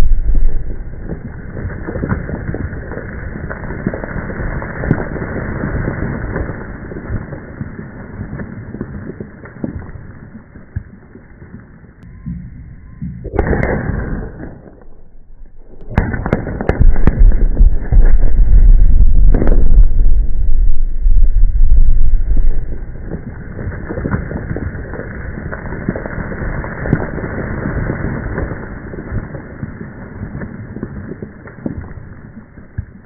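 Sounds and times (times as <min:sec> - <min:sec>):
rumble after rock blast: 0:00.0 - 0:07.7, 0:12.0 - 0:29.7
falling rock knocks: 0:15.9 - 0:20.1.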